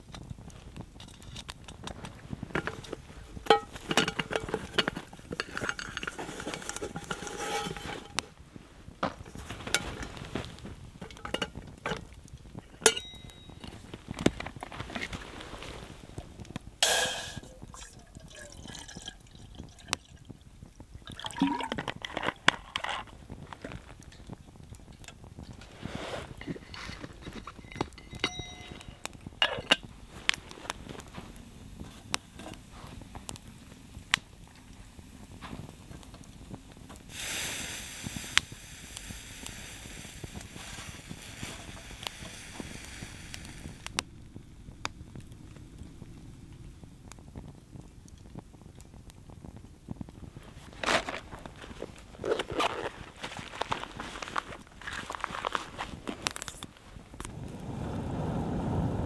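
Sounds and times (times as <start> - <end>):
metal pot and utensils clinking: 1.0 - 8.3, 9.2 - 15.7, 16.8 - 20.2, 21.1 - 23.2, 26.1 - 30.4
water pouring into pot: 16.8 - 23.1.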